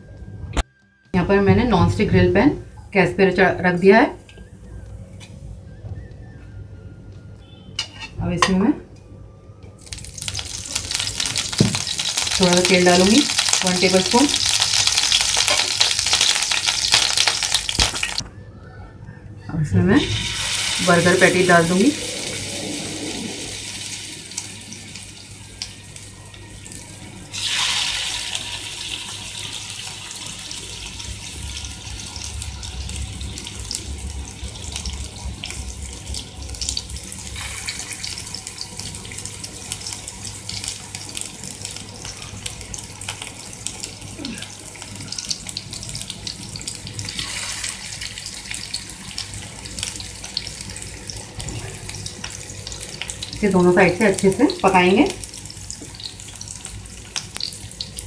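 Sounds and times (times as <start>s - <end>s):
patties sizzling in hot oil: 9.8s - 18.2s, 20.1s - 58.0s.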